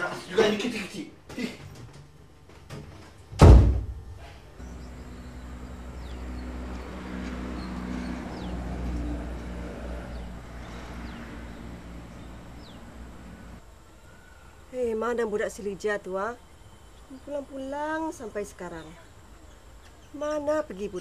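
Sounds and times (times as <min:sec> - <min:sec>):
loud thump: 0:03.3 - 0:04.2.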